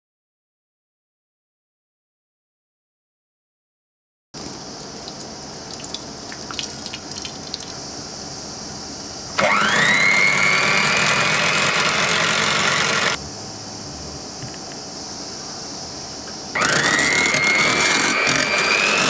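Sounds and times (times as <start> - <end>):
electric hand mixer whine: 9.3 - 13.2, 16.3 - 19.0.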